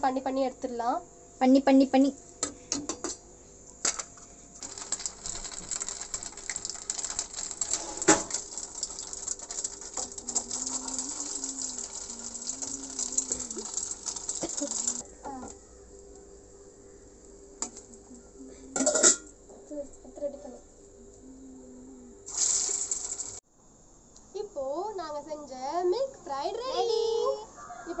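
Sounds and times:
deep-frying sizzling crackle: 0:04.6 - 0:15.0, 0:22.3 - 0:23.4.

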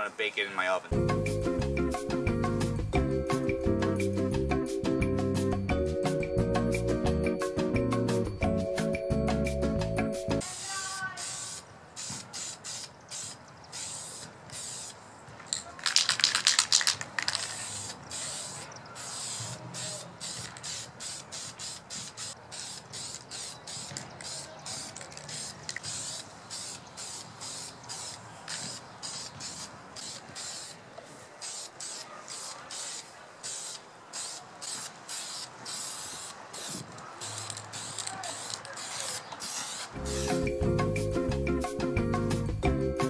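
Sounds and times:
spray paint can hissing: 0:10.4 - 0:40.6.

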